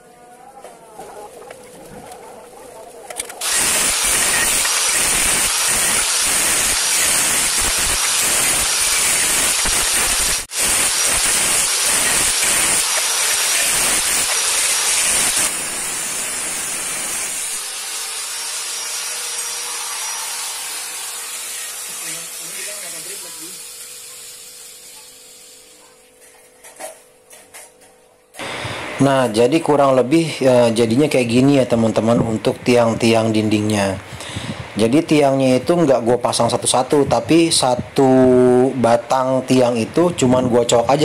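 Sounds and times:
angle grinder cutting steel: 3.4 - 25.7.

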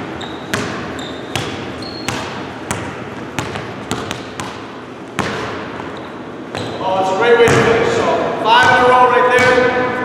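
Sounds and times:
basketball bouncing on gym floor: 0.0 - 6.8, 7.4 - 7.9, 8.6 - 9.9.

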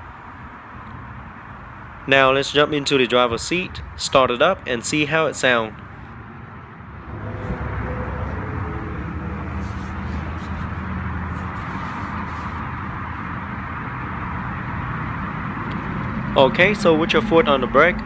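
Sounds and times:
car running with low hum: 6.2 - 18.0.

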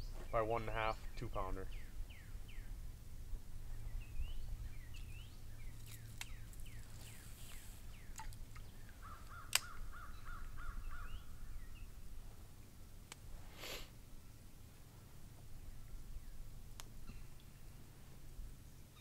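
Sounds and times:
small birds chirping: 0.0 - 3.0, 3.6 - 12.5, 15.4 - 19.0
wind rumble on microphone: 0.0 - 12.6
sharp click: 9.5 - 9.8.

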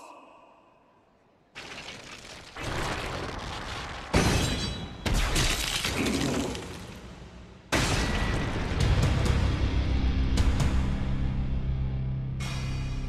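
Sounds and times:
crashing cracking impacts: 1.5 - 7.2.

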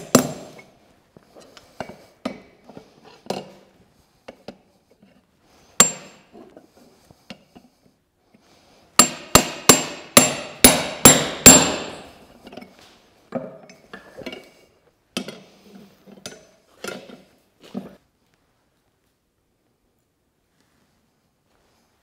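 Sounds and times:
hammer ringing on anvil: 5.8 - 6.2, 9.0 - 12.1.

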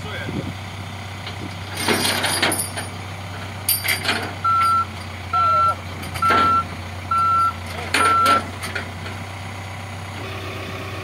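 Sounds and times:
engine idling: 0.0 - 11.0
reversing alarm beeping: 4.4 - 8.4.

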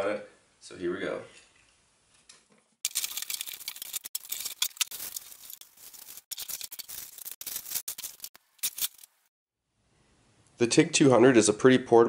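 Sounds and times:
plastic packaging crinkling: 2.8 - 9.3.

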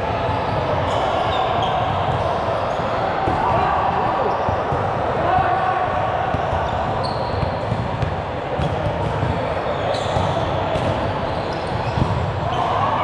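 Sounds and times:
echoing hall noise: 0.0 - 13.0
ball bouncing and thudding: 6.3 - 9.4, 10.1 - 12.4
shoe squeaks: 7.0 - 7.6, 9.8 - 10.4, 11.2 - 12.7.

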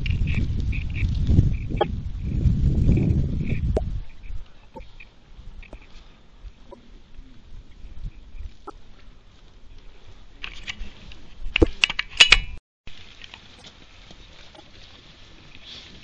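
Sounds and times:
handling clicks and knocks: 11.5 - 12.6.

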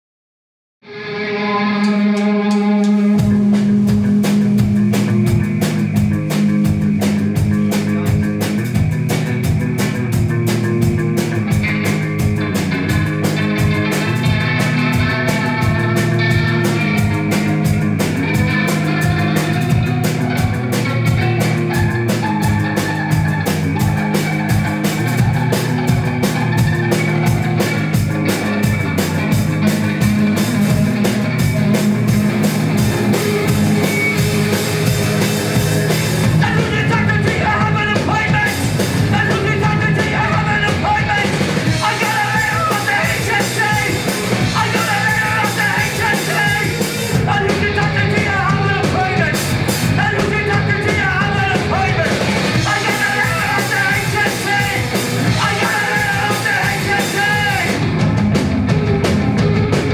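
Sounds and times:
bass guitar: 0.8 - 59.9
electric guitar: 0.8 - 59.9
fast drum beat: 3.2 - 59.9.

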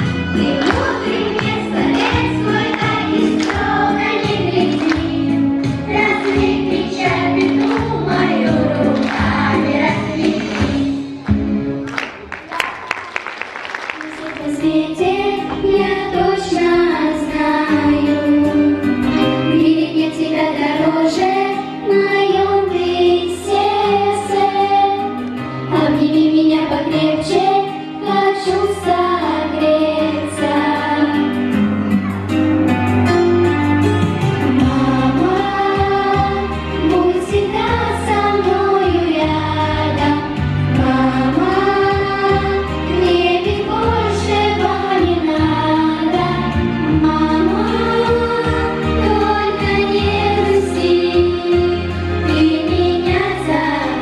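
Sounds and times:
girls choir singing: 0.0 - 11.3, 14.1 - 18.8, 19.5 - 31.4, 34.4 - 54.0
instrumental accompaniment: 0.0 - 12.5, 28.9 - 54.0.

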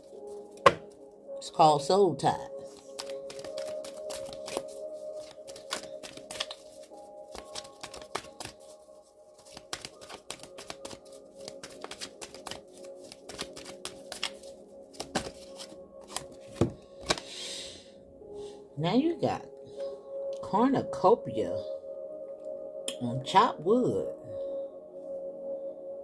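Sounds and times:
soft background music: 0.0 - 26.0
cards being shuffled: 0.5 - 1.0, 2.7 - 8.8, 9.4 - 17.3.

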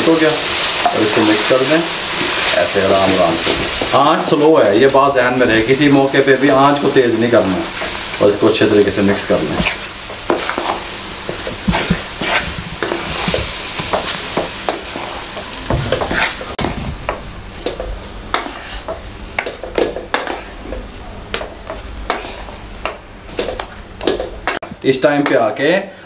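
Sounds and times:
mixture sizzling: 0.0 - 25.4
wooden spoon scraping a pan: 0.5 - 5.8, 9.0 - 24.4.

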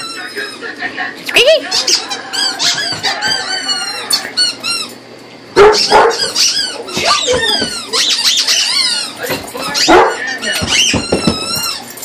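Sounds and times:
rubber chicken toy squeaking: 5.8 - 9.9, 10.6 - 11.8.

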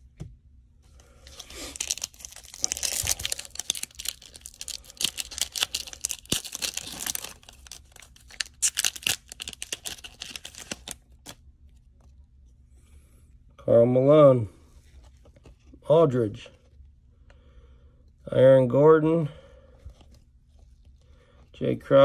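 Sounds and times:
foil wrappers tearing and crinkling: 1.2 - 11.4.

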